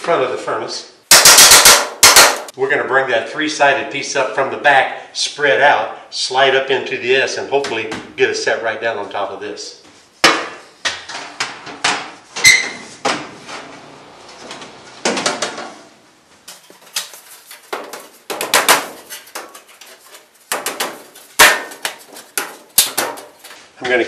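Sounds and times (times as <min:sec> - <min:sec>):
sheet metal clattering and banging: 0:01.1 - 0:02.5, 0:16.5 - 0:23.6.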